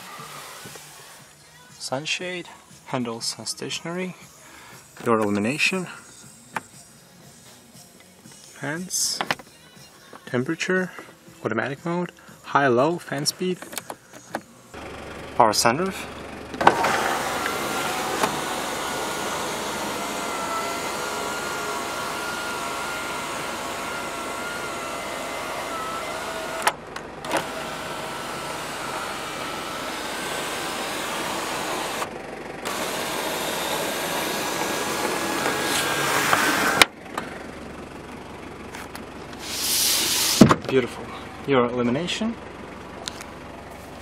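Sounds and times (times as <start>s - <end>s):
sunroof motor whining: 16.3s - 37.6s.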